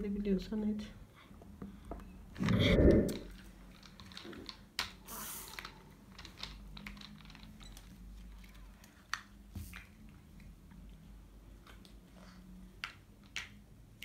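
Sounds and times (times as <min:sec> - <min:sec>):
plastic toy blocks clicking: 0:03.2 - 0:10.6, 0:12.8 - 0:14.0.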